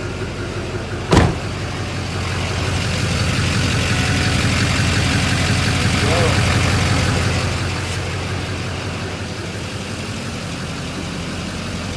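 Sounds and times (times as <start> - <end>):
diesel engine idling: 0.0 - 11.9
truck door shutting: 1.1 - 1.7.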